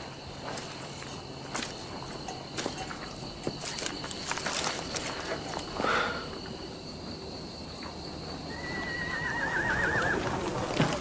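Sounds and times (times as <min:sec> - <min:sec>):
insects chirring: 0:00.0 - 0:11.0
horse whinnying: 0:08.5 - 0:10.4.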